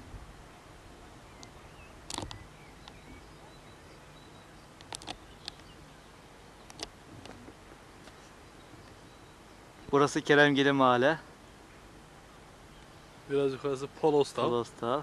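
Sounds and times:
faint bird chirps: 0.8 - 6.7, 8.1 - 10.2
sharp clicks: 1.4 - 3.0, 4.8 - 5.7, 6.6 - 7.4.

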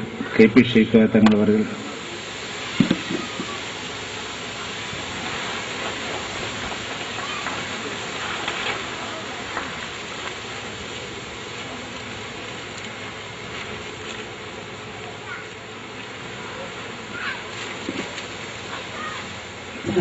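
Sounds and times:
faint voices: 0.0 - 20.0
steady hiss: 0.0 - 20.0.

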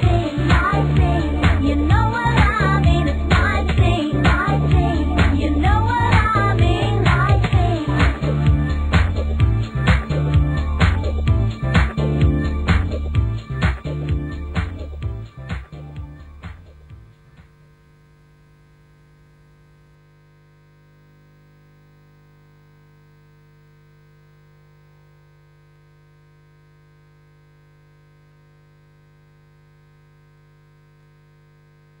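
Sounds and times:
music: 0.0 - 17.6
faint electrical hum: 0.0 - 32.0
tape hiss: 0.0 - 32.0.

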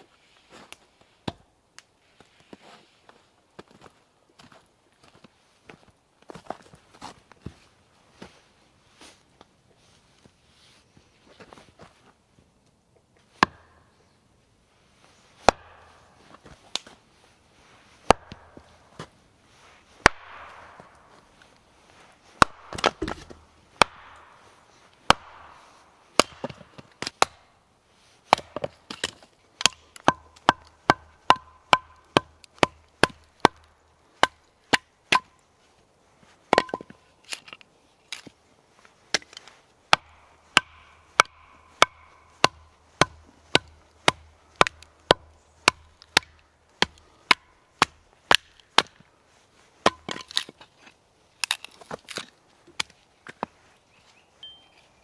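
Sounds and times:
hatchet chopping wood: 13.4 - 13.8, 15.4 - 16.0, 18.0 - 18.6, 20.0 - 21.0, 22.4 - 24.4, 25.0 - 27.5, 28.3 - 35.4, 36.5 - 37.4, 39.1 - 49.0, 49.8 - 50.6.

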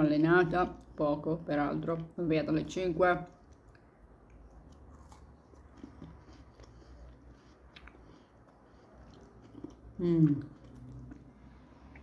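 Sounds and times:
chewing biscuit: 3.3 - 12.0.

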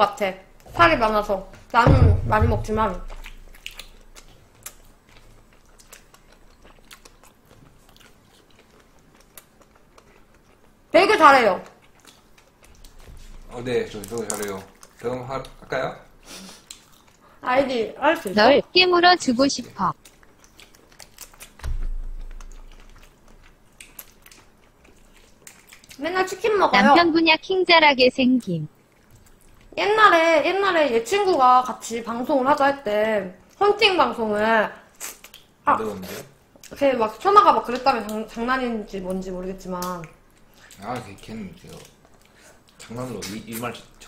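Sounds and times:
dull thump with deep rumble: 0.7 - 3.3, 21.6 - 23.2
chewing food: 2.8 - 15.8, 16.4 - 17.4, 19.9 - 26.7, 28.7 - 29.8, 34.3 - 35.6, 37.6 - 44.0
shrimp shells cracking by hand: 13.9 - 15.0, 20.0 - 24.5.

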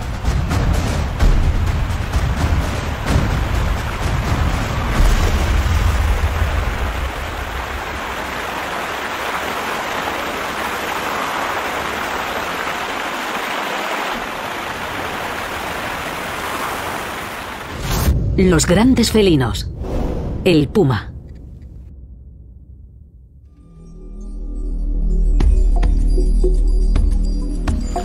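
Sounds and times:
rushing river rapids: 0.0 - 17.7
low rumble: 21.1 - 23.5.

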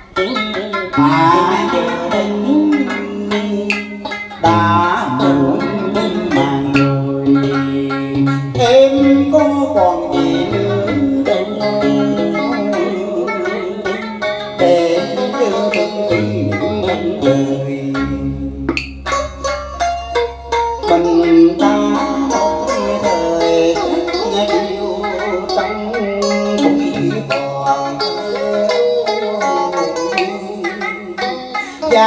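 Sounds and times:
plucked string melody: 0.0 - 32.0
steady bass line: 16.0 - 27.8.

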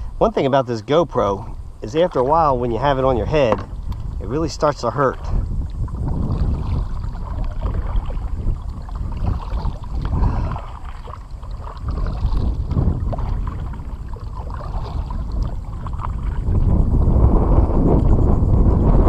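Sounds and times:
wind on microphone: 0.0 - 19.0
paddle splashing in water: 5.1 - 16.8.

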